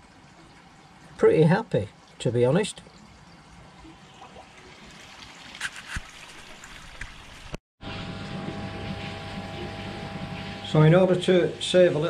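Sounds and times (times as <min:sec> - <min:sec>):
electric pump hum: 0:07.8 - 0:12.0.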